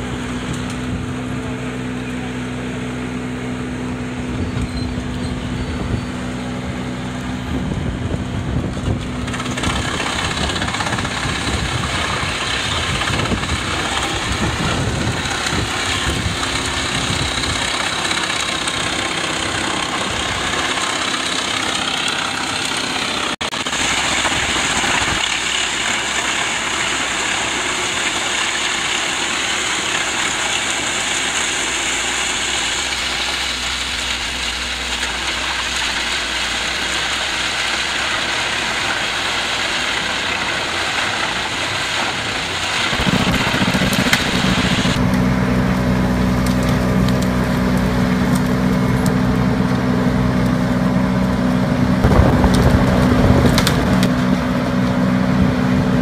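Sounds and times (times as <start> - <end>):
deep engine note: 0.0 - 9.2, 42.8 - 56.0
wood chipper running: 0.0 - 56.0.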